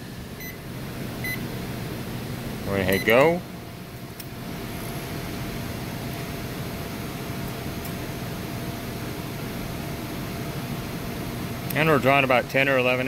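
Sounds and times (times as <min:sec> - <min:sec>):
microwave oven humming: 0:00.0 - 0:13.0.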